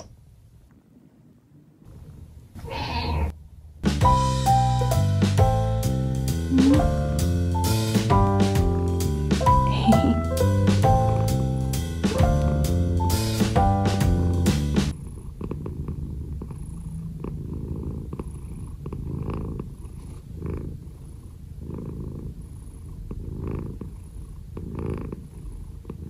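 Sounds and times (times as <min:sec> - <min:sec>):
cat purring: 0:00.0 - 0:03.8, 0:06.5 - 0:13.0, 0:13.9 - 0:26.0
background music: 0:03.9 - 0:14.9.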